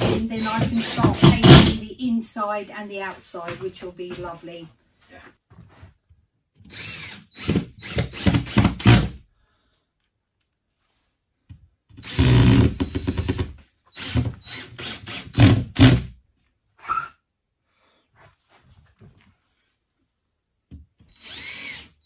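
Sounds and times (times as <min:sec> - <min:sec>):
cordless drill driving screws: 0:00.0 - 0:01.8, 0:06.6 - 0:09.2, 0:12.0 - 0:16.0, 0:21.0 - 0:22.0.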